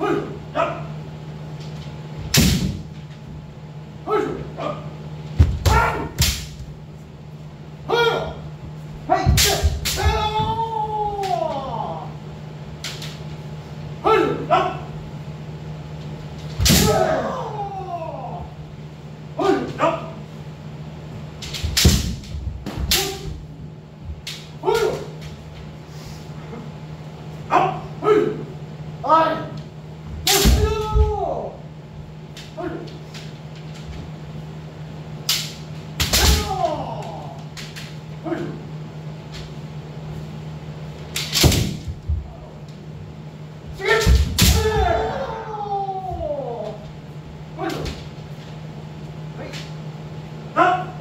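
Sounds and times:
bamboo sword strikes cracking: 2.3 - 2.9, 5.6 - 6.6, 9.3 - 10.2, 16.5 - 17.2, 21.4 - 23.4, 30.2 - 30.8, 35.2 - 36.7, 41.1 - 41.9, 43.9 - 44.8
players shouting: 5.6 - 6.2, 9.1 - 12.2, 14.0 - 14.9, 16.7 - 18.6, 19.4 - 20.2, 30.3 - 31.7, 36.1 - 37.5, 43.7 - 46.9.

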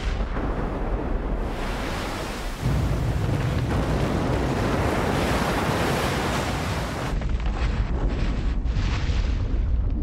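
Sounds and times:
underwater eruption rumble and crackles: 0.0 - 10.0
breaking waves churning: 0.4 - 7.2.

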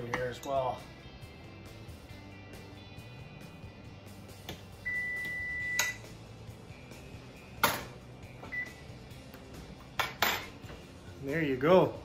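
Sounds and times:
high beep: 4.8 - 6.0, 8.5 - 8.8
cookware clinking and knocking: 10.0 - 10.6.

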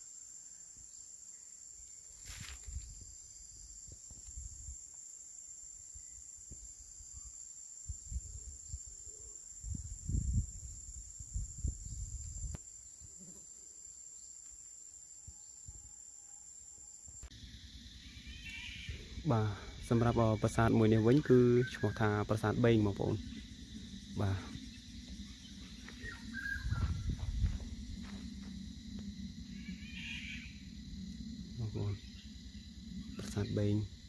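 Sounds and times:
insects droning: 0.0 - 34.0
low rumbles: 22.2 - 34.0.

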